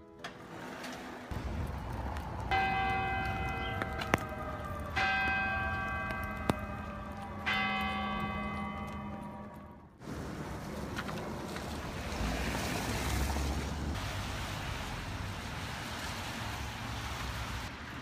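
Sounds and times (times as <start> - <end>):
church bell tolling: 2.4 - 10.0.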